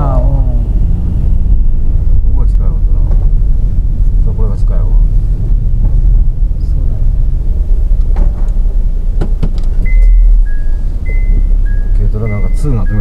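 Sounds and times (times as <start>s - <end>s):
car engine and road noise: 0.0s - 13.0s
high steady tone: 9.8s - 13.0s.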